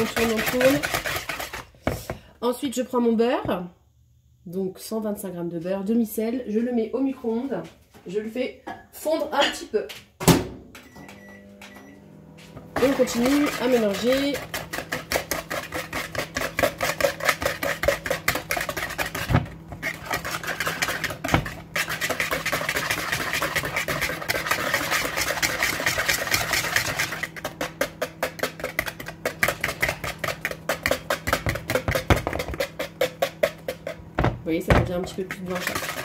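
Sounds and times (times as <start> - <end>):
whisk beating in plastic bowl: 0.0 - 2.3, 12.5 - 36.0.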